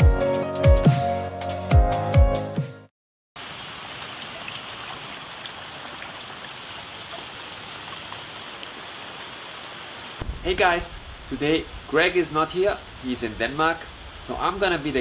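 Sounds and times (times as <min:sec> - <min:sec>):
rain falling on foliage: 0:03.4 - 0:15.0
faint raindrop ticks: 0:07.1 - 0:08.8.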